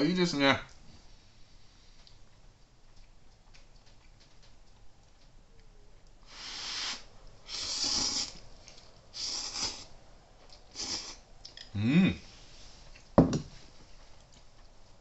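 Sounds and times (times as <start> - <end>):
person slurping noodles: 6.3 - 8.4, 9.2 - 9.9, 10.7 - 11.2.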